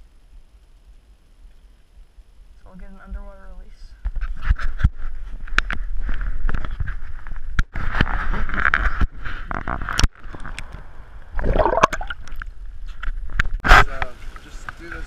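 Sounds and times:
gurgling rush of water: 0:11.3 - 0:12.3
water sloshing and splashing: 0:11.3 - 0:12.4.

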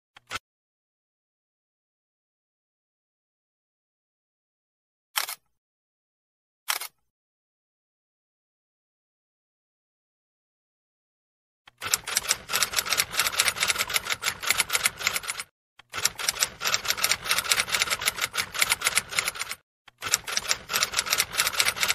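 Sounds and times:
fast keyboard typing clicks: 0:11.7 - 0:21.9.

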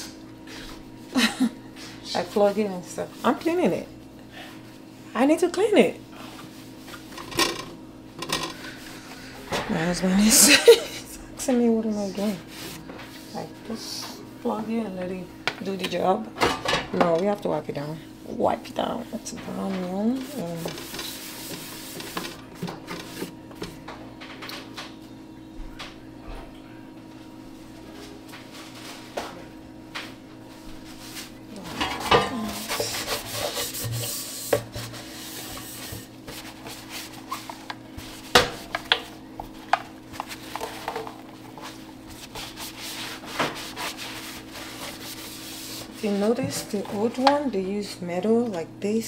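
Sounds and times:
cloth rubbing and wiping: 0:32.4 - 0:38.3, 0:41.6 - 0:46.3.

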